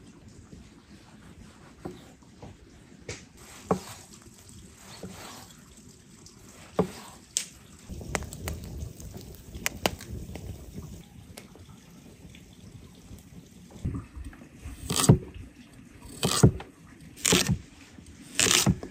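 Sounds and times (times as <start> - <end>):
wood fire crackling: 3.4 - 13.9
knife slicing tomatoes: 14.8 - 15.2, 16.1 - 16.6, 17.2 - 17.6, 18.3 - 18.9.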